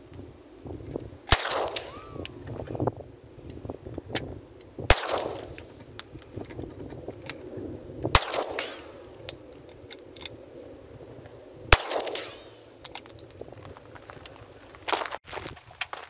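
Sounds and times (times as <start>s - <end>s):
pistol shots with echo: 1.3s - 2.3s, 4.9s - 5.7s, 8.1s - 9.3s, 11.7s - 12.8s.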